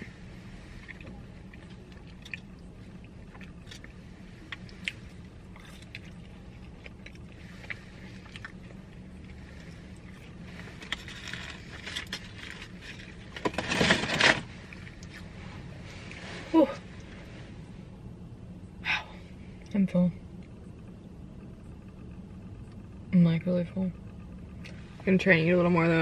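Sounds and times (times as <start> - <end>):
low hum inside car: 0.0 - 26.0
person chewing: 0.6 - 13.4
paper packaging rustling: 10.8 - 14.5.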